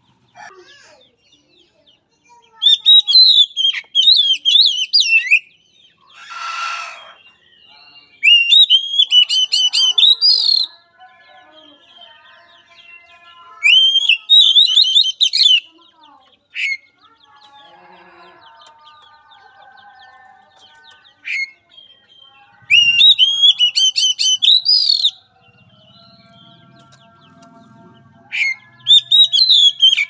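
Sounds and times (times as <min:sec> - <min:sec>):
bird singing whistled notes: 0:02.6 - 0:05.6, 0:08.1 - 0:10.7, 0:13.6 - 0:15.7, 0:22.7 - 0:26.4, 0:28.3 - 0:30.0
harsh bird rasp: 0:06.1 - 0:07.2.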